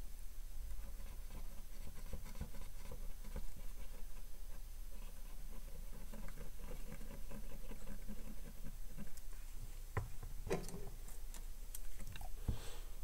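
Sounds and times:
cotton swab scrubbing circuit board: 0:00.8 - 0:09.4.

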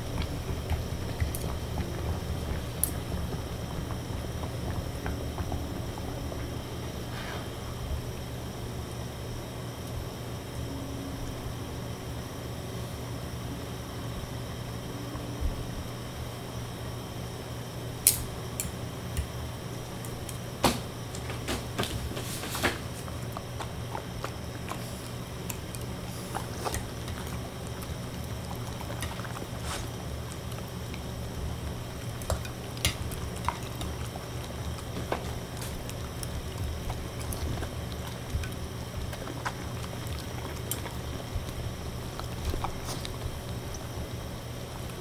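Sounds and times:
dog chewing and licking: 0:00.0 - 0:07.0, 0:22.8 - 0:45.0
steady low hum: 0:00.0 - 0:45.0.

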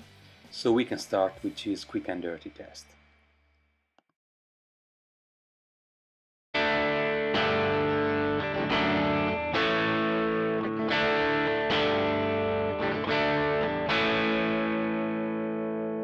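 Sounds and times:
overdriven electric guitar chords: 0:06.6 - 0:16.0.

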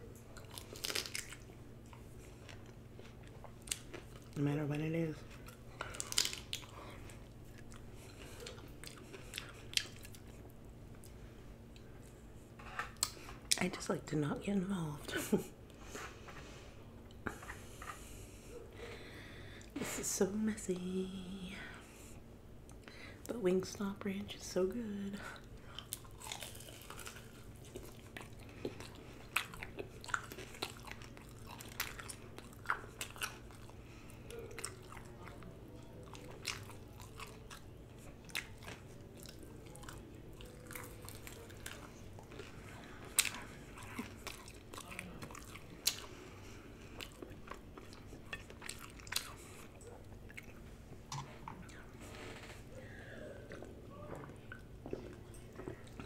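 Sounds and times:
faint low hum: 0:00.0 - 0:56.0
person biting and chewing: 0:00.3 - 0:04.3, 0:05.8 - 0:06.8, 0:25.8 - 0:33.8.

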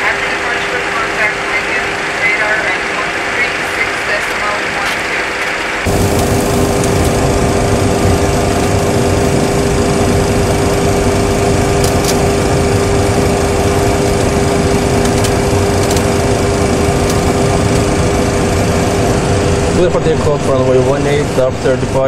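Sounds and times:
jet engines idling: 0:00.0 - 0:22.0.

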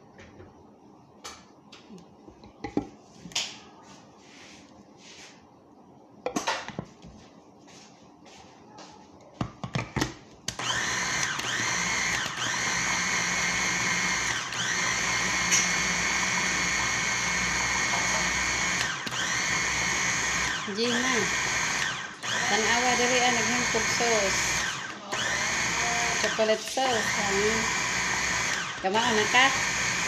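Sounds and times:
food chopper motor whining: 0:10.5 - 0:30.0.

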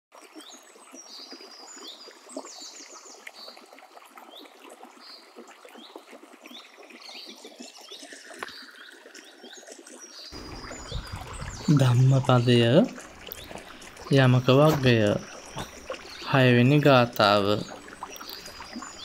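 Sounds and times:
stream water trickling: 0:00.1 - 0:19.0
small birds chirping: 0:04.3 - 0:19.0.

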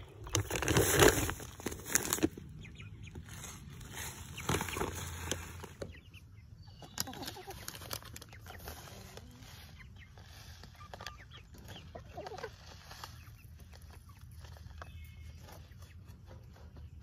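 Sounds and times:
hens clucking: 0:00.0 - 0:17.0
chicken feed trickling down tube: 0:06.8 - 0:17.0.

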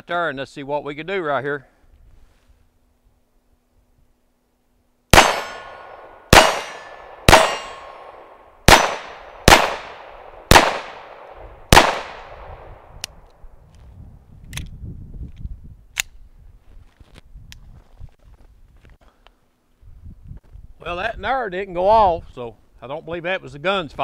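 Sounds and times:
pistol shots: 0:05.1 - 0:12.9.

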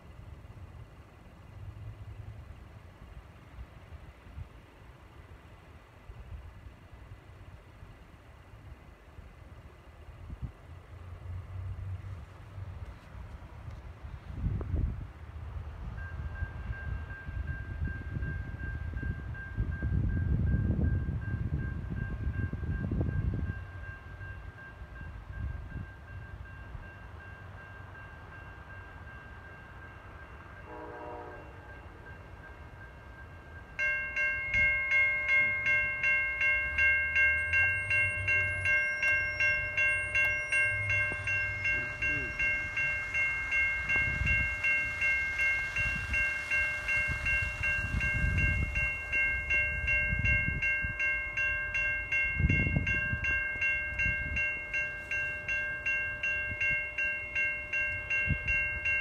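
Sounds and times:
railroad crossing bell ringing: 0:15.6 - 0:59.0
distant train horn: 0:30.4 - 0:32.6, 0:38.2 - 0:49.6.

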